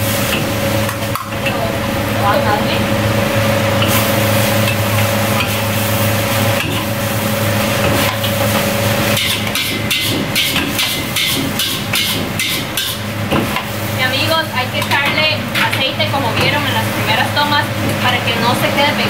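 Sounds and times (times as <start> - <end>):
kitchen hum: 0.0 - 19.0
metal utensils scraping steel wok: 3.8 - 14.2.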